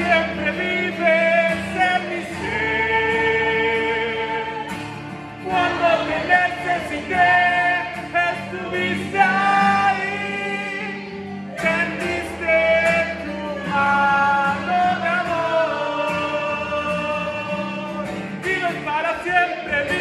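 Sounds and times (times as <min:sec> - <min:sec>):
man singing: 0:00.0 - 0:20.0
strummed acoustic guitar: 0:00.0 - 0:20.0
women's backing vocals: 0:05.4 - 0:07.8.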